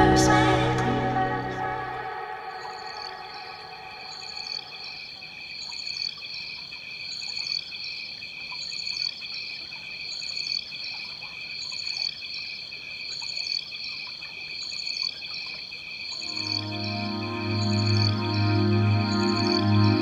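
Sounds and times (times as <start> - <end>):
high insect chirp: 2.2 - 19.9
insects trilling: 2.5 - 8.0.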